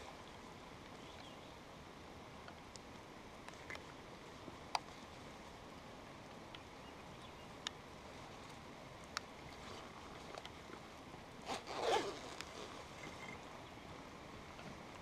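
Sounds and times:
faint steady hiss: 0.0 - 15.0
zipper rasping: 11.4 - 13.4.

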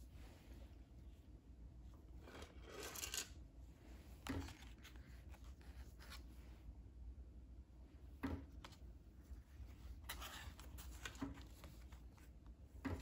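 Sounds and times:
paper pages rustling: 4.2 - 6.4, 9.6 - 12.4.

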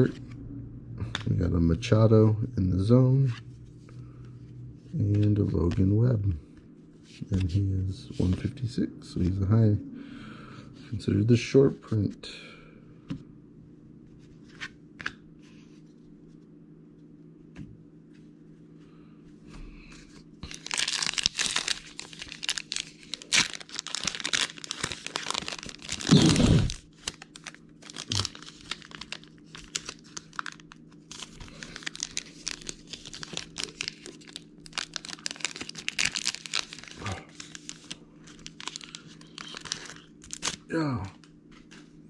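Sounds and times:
card wrappers tearing and crinkling: 20.4 - 40.7.

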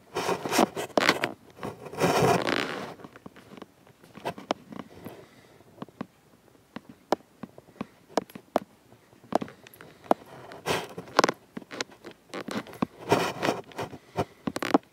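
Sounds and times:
short scraping rubs: 0.1 - 3.0, 10.3 - 14.8.

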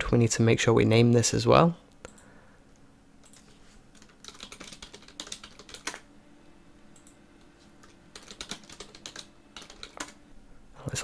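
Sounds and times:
typing on a keyboard: 4.0 - 6.0, 7.8 - 10.2.

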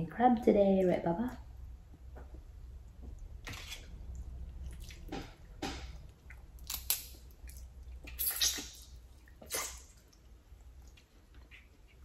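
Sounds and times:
wet mouth eating sounds: 6.0 - 12.0.

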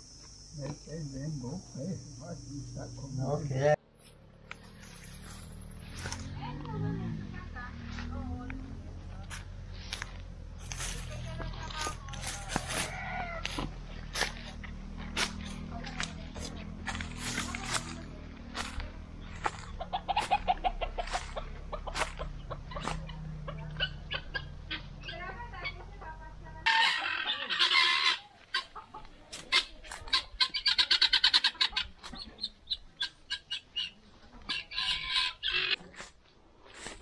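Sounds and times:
chicken drawn-out calls: 12.2 - 14.5, 19.3 - 25.8, 26.6 - 35.8
chickens clucking: 17.4 - 36.1.

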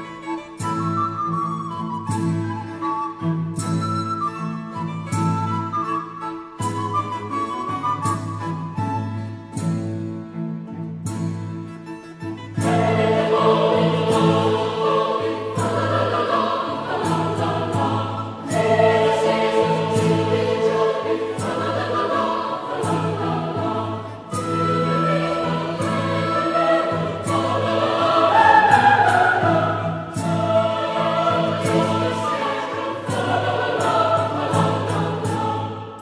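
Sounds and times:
choir singing: 12.6 - 36.0.

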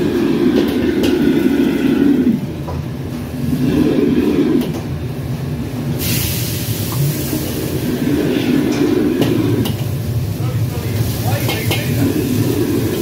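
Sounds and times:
gas burner and extraction hood roar: 0.0 - 13.0
food sizzling in a hot wok: 6.0 - 7.8, 9.4 - 13.0.

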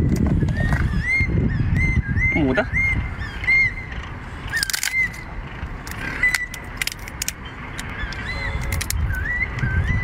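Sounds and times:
crayfish shell cracking: 4.6 - 5.0, 5.9 - 7.9.

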